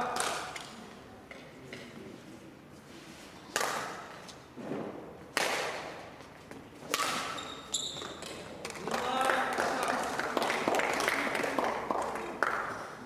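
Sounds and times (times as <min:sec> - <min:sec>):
racket hitting shuttlecock: 0:03.5 - 0:04.2, 0:05.3 - 0:06.0, 0:06.8 - 0:08.9.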